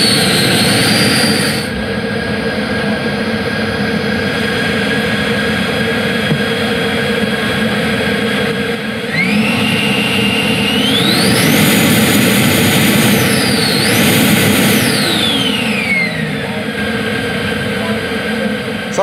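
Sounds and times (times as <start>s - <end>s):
electric fan whine: 0.0s - 19.0s.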